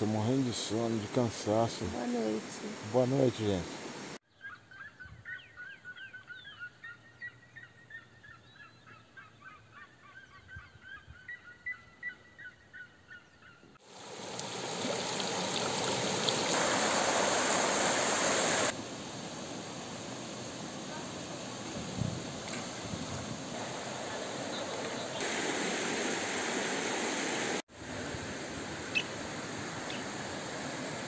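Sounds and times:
steady rushing hiss: 0:00.0 - 0:04.2, 0:13.8 - 0:31.0
birds chirping: 0:22.4 - 0:25.4.

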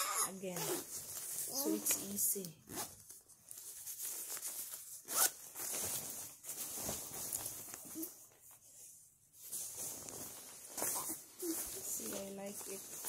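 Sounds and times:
zipper being worked: 0:00.0 - 0:03.0, 0:05.0 - 0:05.4
fabric rustling: 0:00.4 - 0:13.0.

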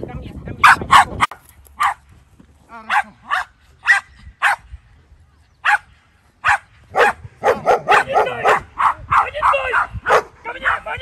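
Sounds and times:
dog barking: 0:00.6 - 0:02.0, 0:02.9 - 0:04.6, 0:05.6 - 0:10.4.

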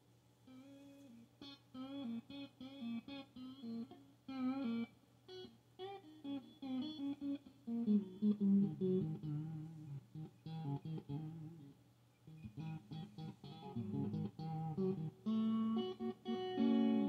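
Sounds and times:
electric guitar melody: 0:00.5 - 0:17.0.

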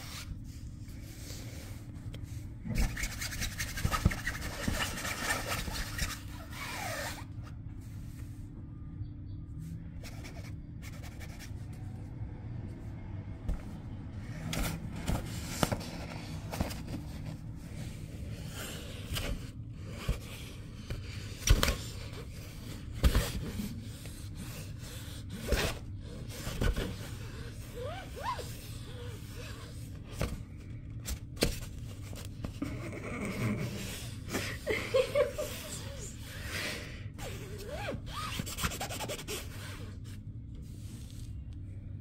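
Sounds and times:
scratching on nylon fabric: 0:02.7 - 0:07.4, 0:37.3 - 0:41.5.

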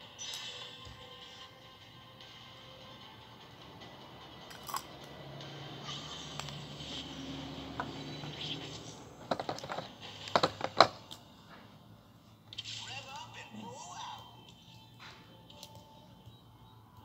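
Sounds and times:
sharp clicks of small hard items: 0:04.5 - 0:05.1, 0:09.2 - 0:11.3.

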